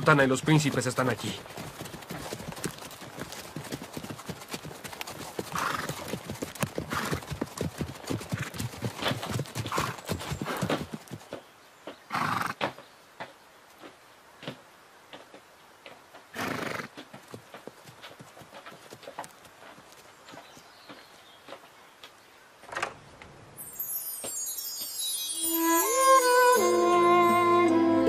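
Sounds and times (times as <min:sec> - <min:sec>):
hooves clip-clopping on dirt: 0:00.0 - 0:22.4, 0:23.9 - 0:26.2
horse calls: 0:05.5 - 0:06.2.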